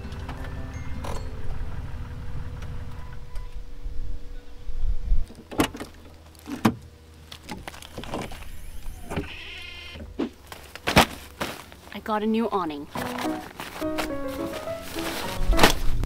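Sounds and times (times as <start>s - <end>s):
low rumble: 0.0s - 5.3s.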